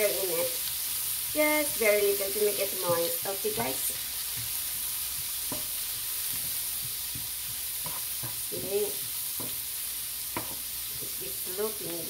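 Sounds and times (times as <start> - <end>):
greens sizzling in skillet: 0.0 - 12.0
wooden spatula scraping pan: 6.3 - 9.6.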